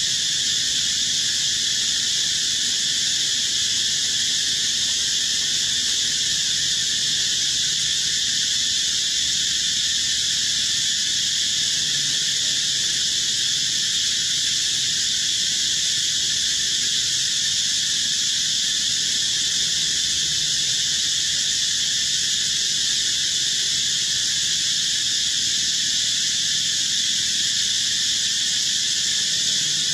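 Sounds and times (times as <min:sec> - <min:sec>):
insect chorus drone: 0:00.0 - 0:29.9.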